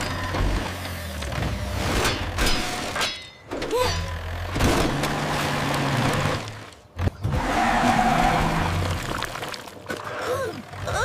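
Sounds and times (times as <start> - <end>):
wheels churning through mud: 3.7 - 11.0.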